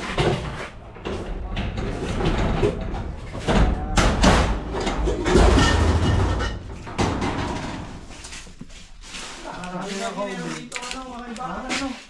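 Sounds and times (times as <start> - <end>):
knocks and bangs: 0.0 - 8.2
rough scraping and rumbling: 0.0 - 8.5.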